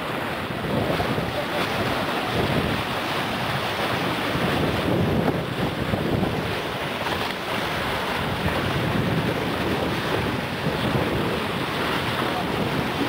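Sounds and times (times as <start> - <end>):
bow wave splashing: 0.0 - 13.0
choppy sea rushing: 0.0 - 13.0
wind buffeting microphone: 0.0 - 13.0.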